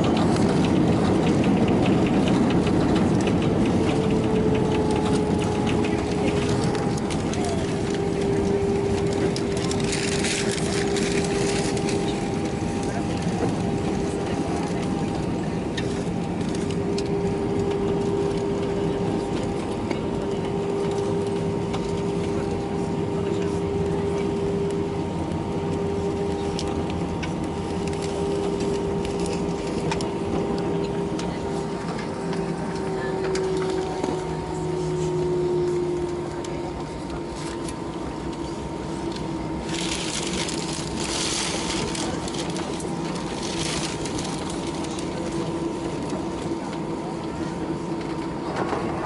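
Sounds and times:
aircraft engine and air rush: 0.0s - 49.0s
airplane cabin rumble: 0.0s - 49.0s.

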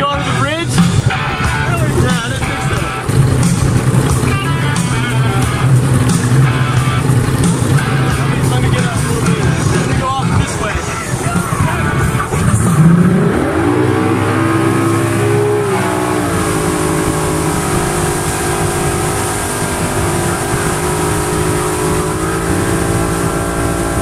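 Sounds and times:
boat engine revving: 0.0s - 24.0s.

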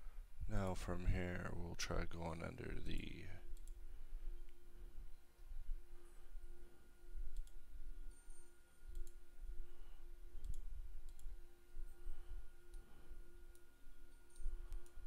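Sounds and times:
steady hum: 0.0s - 15.0s
computer mouse clicking: 3.5s - 3.8s, 7.3s - 7.6s, 8.3s - 9.2s, 10.4s - 11.4s, 13.5s - 15.0s.

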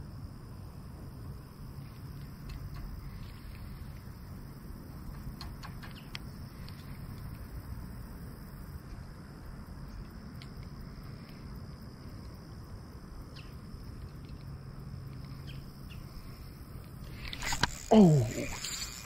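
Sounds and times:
high-pitched insect trill: 0.0s - 19.0s
faint ticks: 1.8s - 4.1s, 5.0s - 7.5s, 9.8s - 12.4s.

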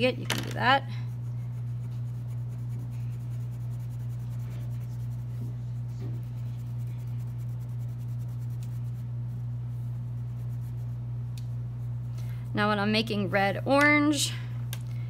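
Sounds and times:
low electrical hum: 0.0s - 15.0s
crayon rubbing on paper: 1.1s - 9.1s, 9.8s - 11.0s.

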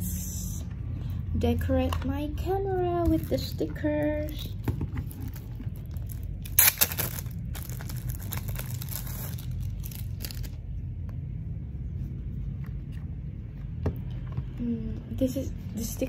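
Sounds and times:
low hum: 0.0s - 16.0s
stickers being peeled: 5.1s - 10.6s.

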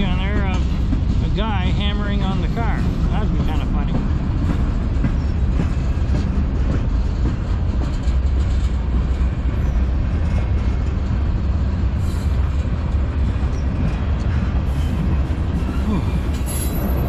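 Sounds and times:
train wheels rumbling on rails: 0.0s - 17.0s.

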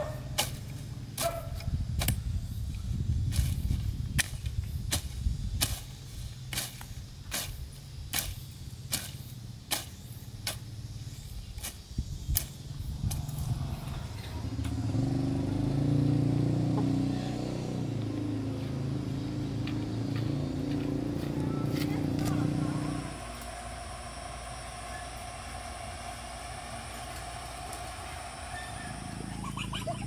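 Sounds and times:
vehicle engine running: 0.0s - 2.4s, 12.6s - 30.0s
sickle swishing through grass: 3.2s - 13.5s.

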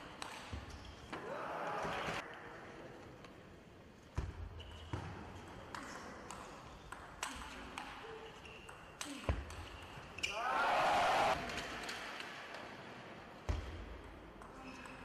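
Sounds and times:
sports hall murmur: 1.1s - 3.5s, 10.2s - 11.8s.

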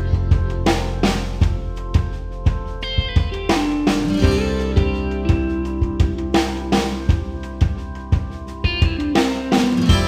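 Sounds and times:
held melody line: 0.0s - 10.0s
steady drum beat: 0.0s - 10.0s.

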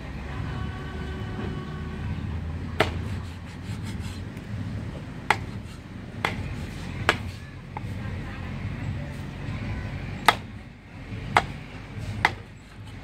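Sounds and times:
low steady rumble: 0.0s - 13.0s
sharp short knocks: 5.3s - 7.9s.

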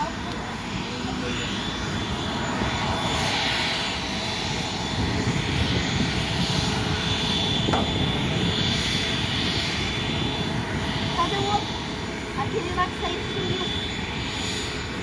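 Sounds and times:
jet engines running: 0.0s - 15.0s.

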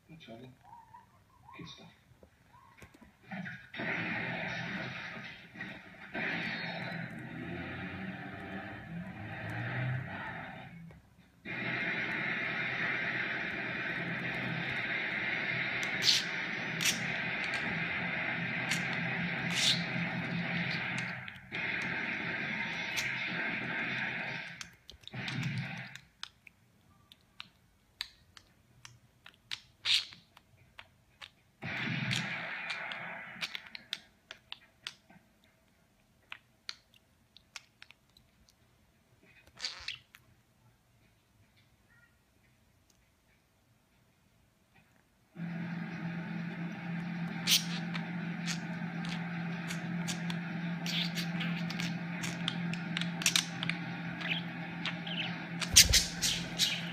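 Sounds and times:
noisy rush: 3.4s - 25.9s, 48.0s - 56.9s
budgerigar chirps: 54.2s - 56.9s.

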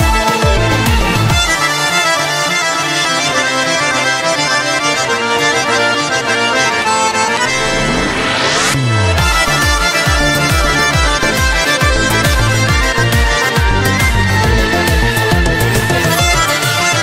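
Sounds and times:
accordion dance music: 0.0s - 17.0s
rising pitch sweep: 6.6s - 16.5s.

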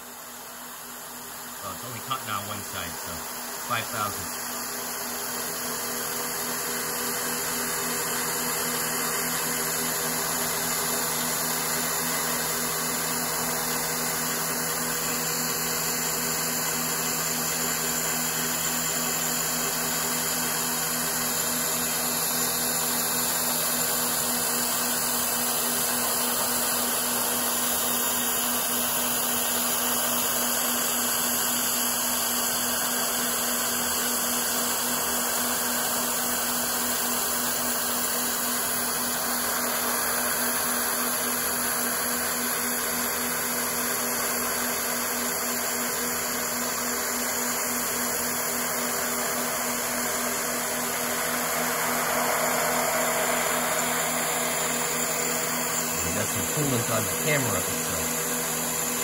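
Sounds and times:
milling machine spindle whirring: 0.2s - 45.3s, 48.2s - 59.0s.

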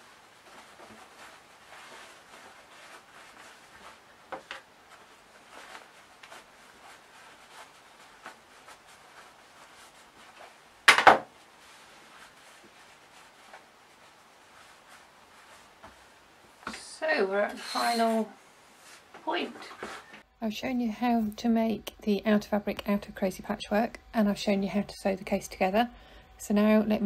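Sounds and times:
fabric rustling: 0.0s - 20.3s.

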